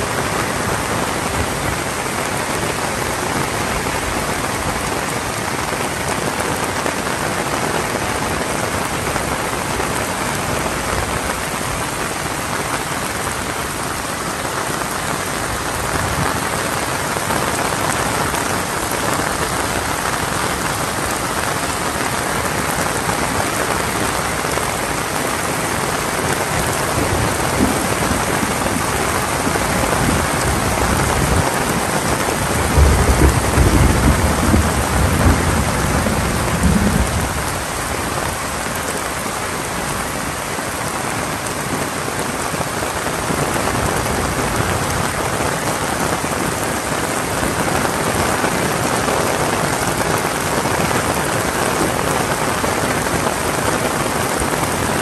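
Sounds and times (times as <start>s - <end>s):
heavy rain falling: 0.0s - 55.0s
thunder rumbling: 22.7s - 39.0s.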